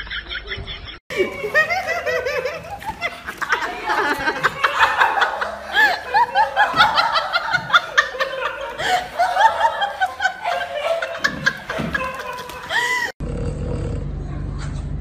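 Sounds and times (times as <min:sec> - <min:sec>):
person laughing high-pitched: 0:01.1 - 0:13.1.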